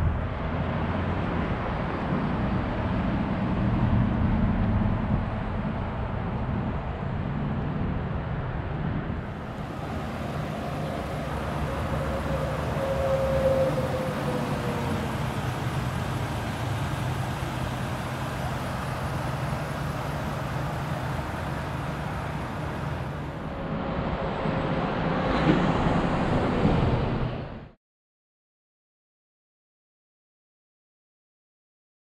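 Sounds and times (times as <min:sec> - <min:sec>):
road traffic: 0:00.0 - 0:27.8
rising and falling whine: 0:09.1 - 0:27.8.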